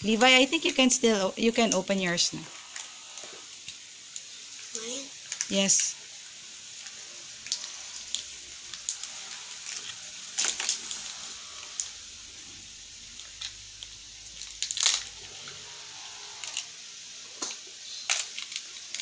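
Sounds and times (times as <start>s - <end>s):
paper wrapper crinkling: 6.8s - 11.9s, 13.2s - 15.2s, 18.1s - 19.0s.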